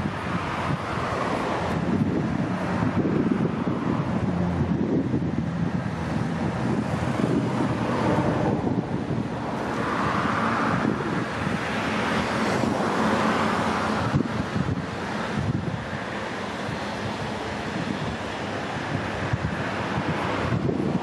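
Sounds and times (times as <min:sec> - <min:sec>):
road traffic rushing: 0:00.0 - 0:21.0
vehicles passing: 0:00.0 - 0:21.0
wind buffeting microphone: 0:00.0 - 0:21.0.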